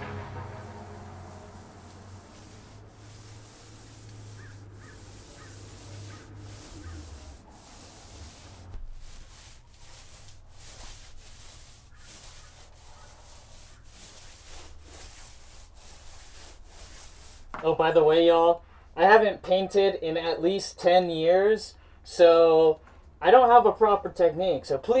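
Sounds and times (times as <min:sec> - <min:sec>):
steady low hum: 0:00.0 - 0:11.6
paint roller rubbing: 0:00.0 - 0:17.7.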